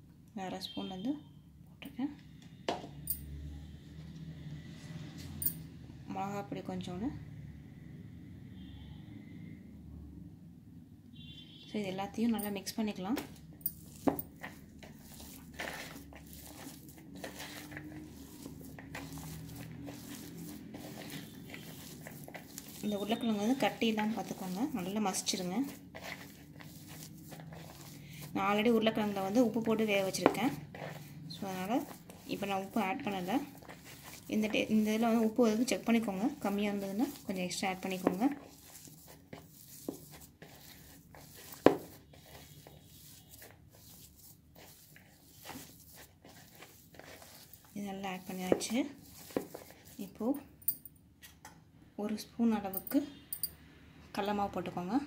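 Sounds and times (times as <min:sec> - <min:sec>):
hand squishing potato mixture: 0:11.5 - 0:50.6.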